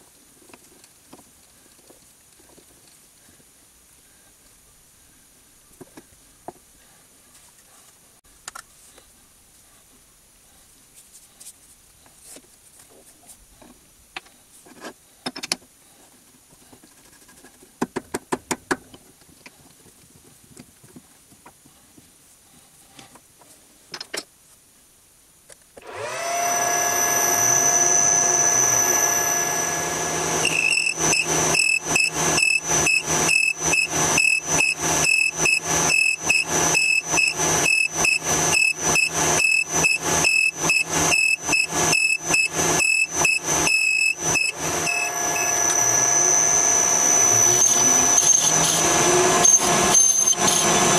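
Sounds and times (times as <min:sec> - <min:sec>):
lathe whine: 0:25.8 - 0:50.9.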